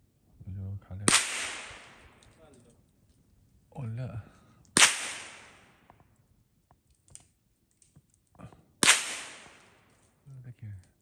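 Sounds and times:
gunshots: 1.1 - 2.2, 4.8 - 5.8, 8.8 - 9.8.

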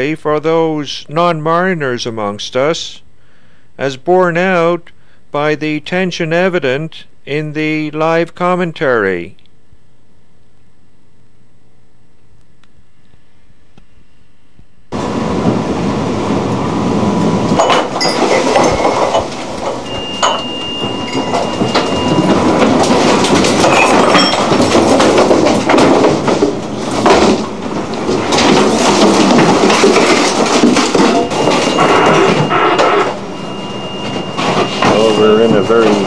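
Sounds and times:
wind and sea rushing: 15.0 - 20.2
objects clattering and banging: 17.5 - 36.0
high steady tone: 17.6 - 22.7, 31.1 - 36.0.

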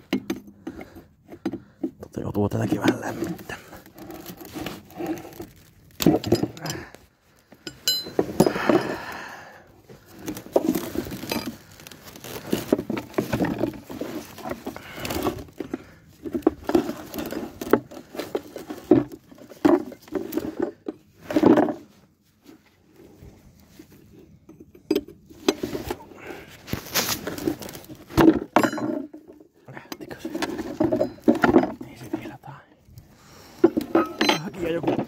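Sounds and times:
hand tools clinking on metal: 6.0 - 6.9, 7.6 - 9.0, 28.6 - 29.1, 33.8 - 35.0.

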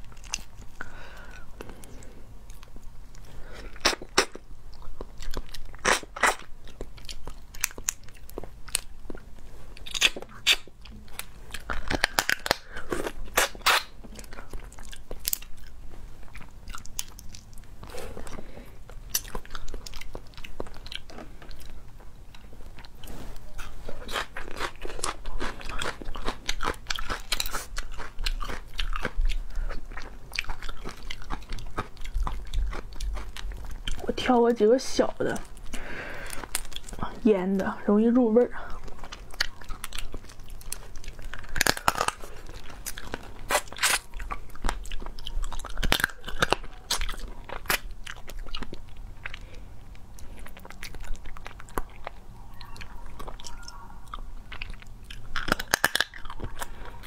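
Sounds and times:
chewing: 0.0 - 57.0
crustacean shells cracking: 9.8 - 15.6, 39.0 - 47.9, 54.6 - 56.9.

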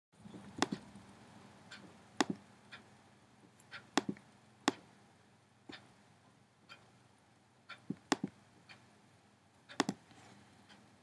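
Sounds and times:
computer mouse clicks: 7.8 - 8.4, 9.7 - 10.1.

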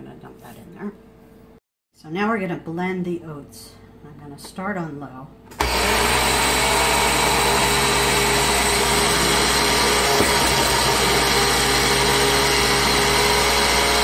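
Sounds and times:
blender motor grinding oats: 5.6 - 14.0.

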